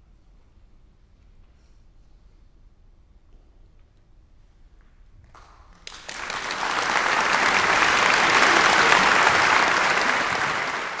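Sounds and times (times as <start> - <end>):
audience applause: 5.8 - 11.0.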